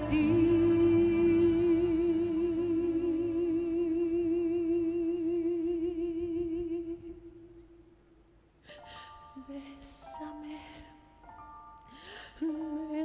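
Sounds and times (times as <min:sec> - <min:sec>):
soft orchestral accompaniment: 0:00.0 - 0:06.0
soprano singing long note: 0:00.0 - 0:06.9.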